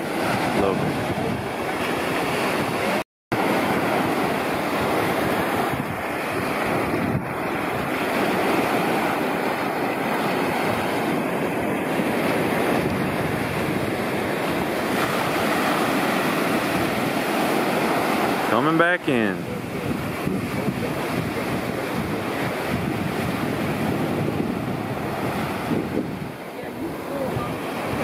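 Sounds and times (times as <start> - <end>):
small ocean waves washing ashore: 0.0 - 28.0
wind rumbling on microphone: 0.0 - 28.0.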